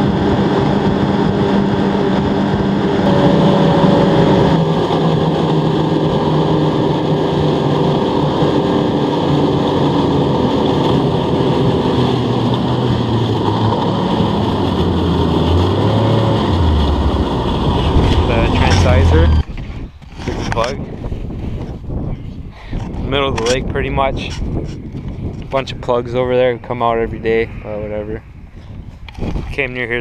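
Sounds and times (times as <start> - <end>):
snowmobile engine running: 0.0 - 20.8.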